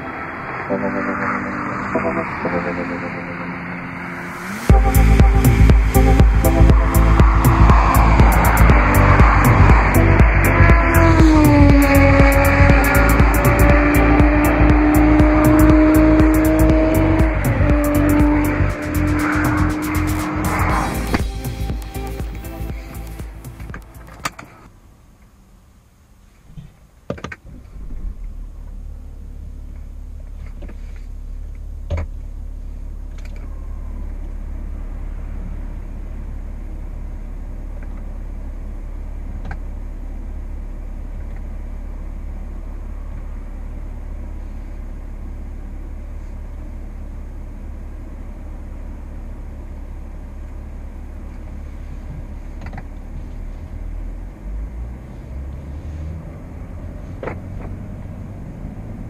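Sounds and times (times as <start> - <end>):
diesel engine idling: 3.6 - 24.7.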